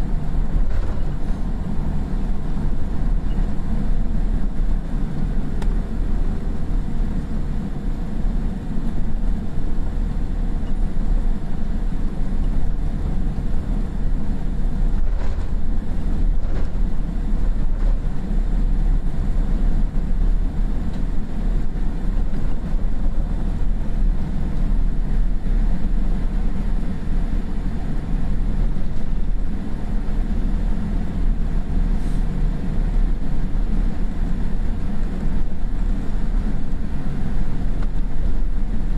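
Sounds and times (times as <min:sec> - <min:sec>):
aircraft engines idling rumble: 0:00.0 - 0:38.9.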